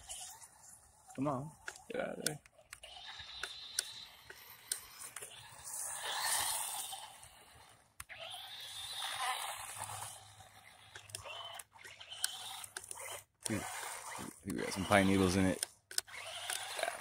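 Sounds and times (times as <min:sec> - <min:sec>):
rc truck motor and tyres rushing: 0:00.0 - 0:17.0
scattered clicks: 0:14.5 - 0:16.9.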